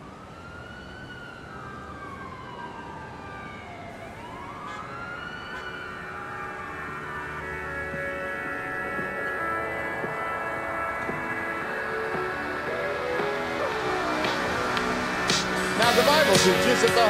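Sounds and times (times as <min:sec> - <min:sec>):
city traffic rumble: 0:00.0 - 0:17.0
siren wailing: 0:00.0 - 0:17.0
music: 0:11.0 - 0:17.0.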